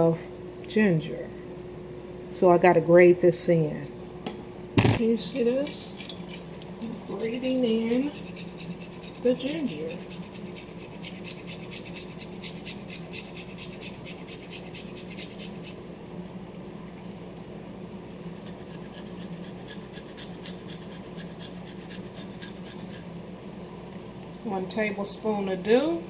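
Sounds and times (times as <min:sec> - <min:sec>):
ginger rasping on grater: 0:05.2 - 0:15.8, 0:18.2 - 0:23.1.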